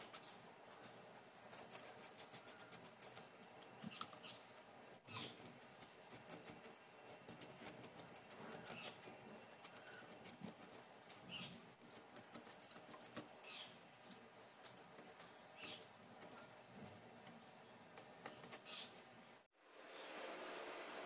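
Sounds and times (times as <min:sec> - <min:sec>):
fingernail scratching paint flakes: 0:00.0 - 0:04.4, 0:05.1 - 0:13.4.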